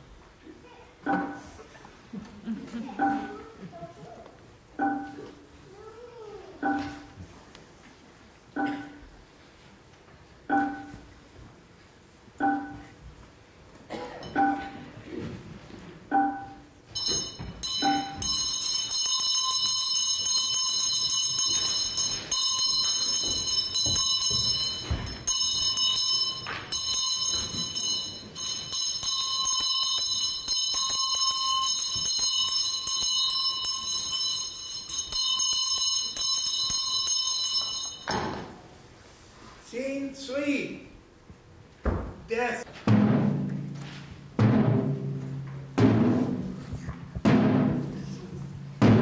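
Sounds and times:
bell ringing rapid jangle: 16.9s - 38.1s.

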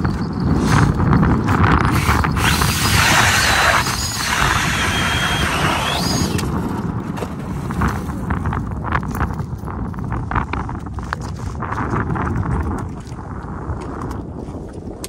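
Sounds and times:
electric ice auger drilling: 1.6s - 6.7s.

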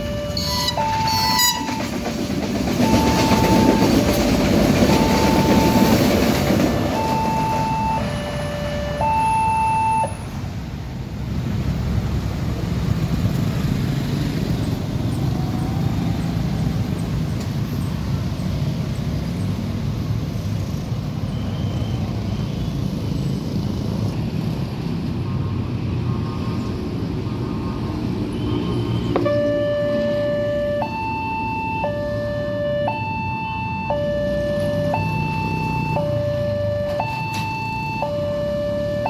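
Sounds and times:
crossing warning alarm tone: 0.0s - 10.4s, 29.0s - 39.0s
traffic rumble of engines and tyres: 0.0s - 39.0s.

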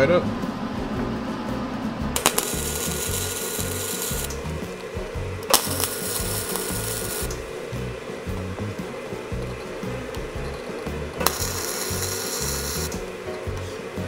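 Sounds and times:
wire welder crackling: 2.2s - 13.2s.

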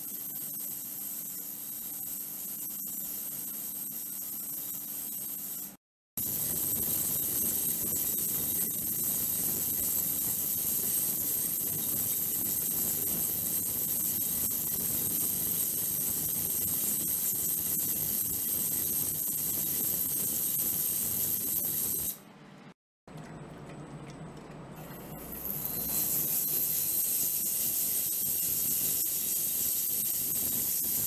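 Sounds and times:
ultrasonic cleaner hiss: 25.0s - 31.0s.

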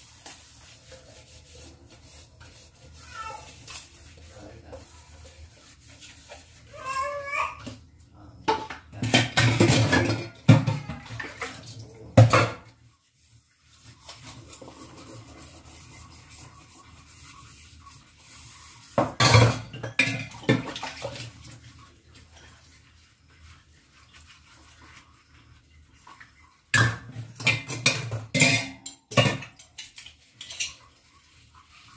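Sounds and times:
dishes and cutlery clattering: 8.4s - 12.7s, 19.0s - 21.3s, 26.7s - 31.1s.

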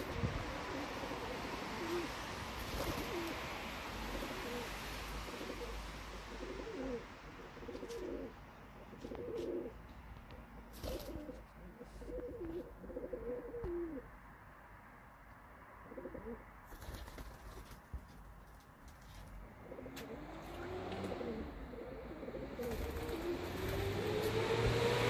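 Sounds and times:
pigeons cooing: 0.0s - 9.8s, 10.8s - 14.1s, 15.9s - 16.4s, 19.6s - 24.1s.

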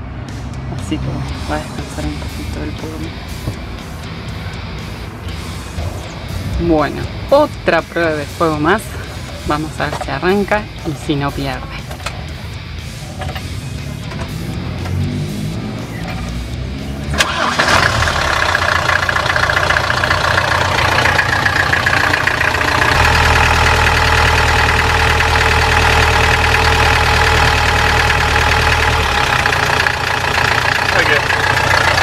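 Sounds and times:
diesel engine idling: 0.0s - 32.0s
engine starter click: 17.2s - 18.6s.

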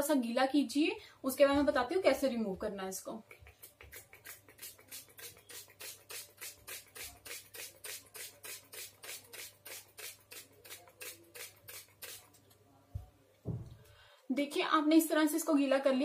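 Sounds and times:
spray bottle hissing puffs: 3.4s - 12.2s.

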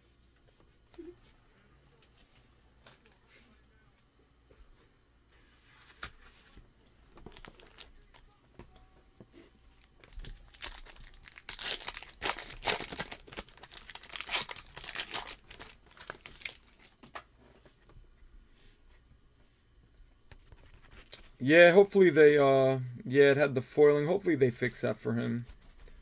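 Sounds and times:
wrapper tearing and crinkling: 10.0s - 17.2s.

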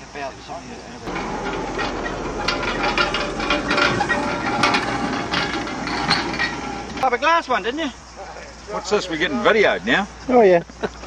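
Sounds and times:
dense clicking and rattling: 1.1s - 7.1s.

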